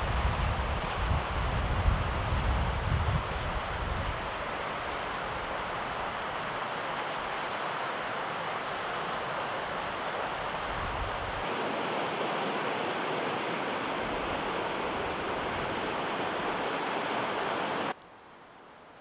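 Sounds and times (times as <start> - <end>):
river rapids rushing: 3.2 - 18.0.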